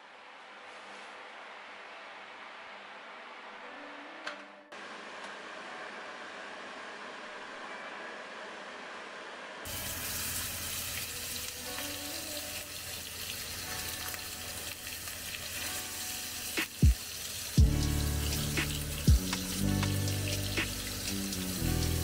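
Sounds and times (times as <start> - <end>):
music: 0.5 - 4.8, 9.6 - 22.0
steak sizzling in oil: 9.7 - 22.0.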